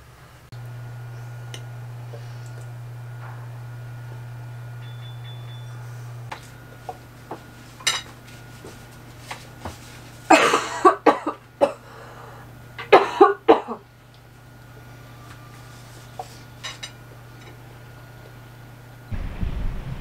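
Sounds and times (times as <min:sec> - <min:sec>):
person coughing: 0:10.3 - 0:12.1, 0:12.8 - 0:13.9.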